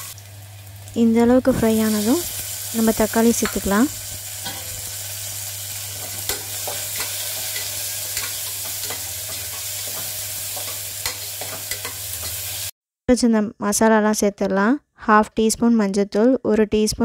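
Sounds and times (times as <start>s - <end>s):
onions and tomatoes sizzling in oil: 0.0s - 12.8s.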